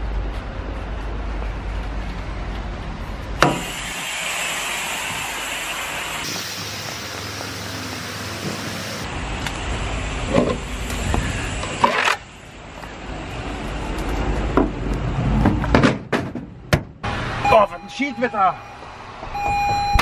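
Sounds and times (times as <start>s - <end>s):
lorry engine rumbling: 0.0s - 20.0s
steady hiss: 3.4s - 13.2s.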